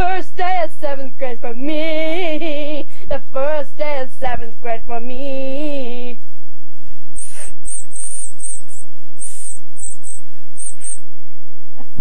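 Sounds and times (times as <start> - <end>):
girl singing: 0.0 - 6.2.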